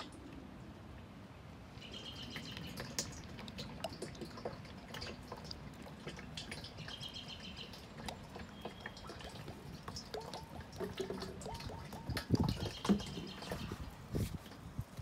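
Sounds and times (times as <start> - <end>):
birds chirping faintly: 1.7 - 10.7
drips and splashes: 1.7 - 15.0
oil pouring through plastic funnel: 2.3 - 15.0.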